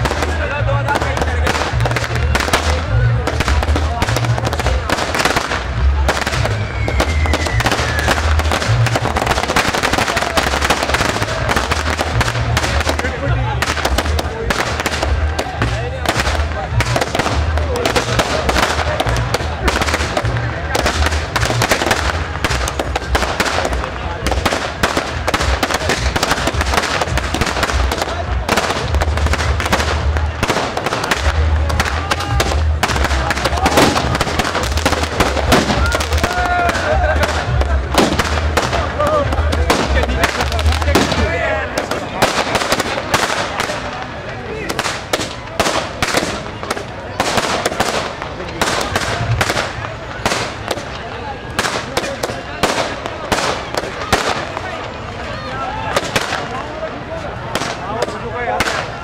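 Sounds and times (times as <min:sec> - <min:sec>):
fireworks bangs and crackles: 0:00.0 - 0:59.0
falling firework whistle: 0:06.2 - 0:08.8.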